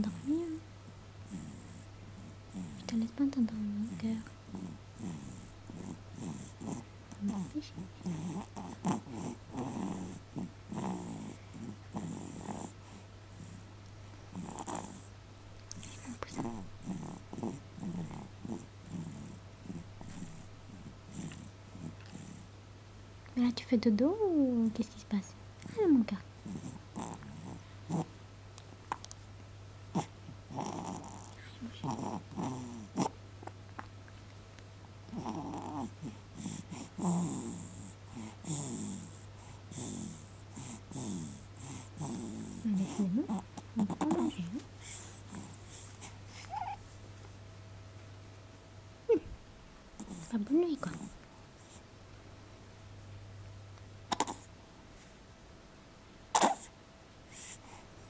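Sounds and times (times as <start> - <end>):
baby grunting: 4.5 - 12.7, 26.4 - 28.1, 29.9 - 33.2, 35.1 - 39.1, 46.4 - 46.8, 50.0 - 51.1, 54.1 - 54.5, 56.3 - 56.7
baby grunting and squeaking: 46.4 - 46.8, 54.1 - 54.5, 56.3 - 56.7.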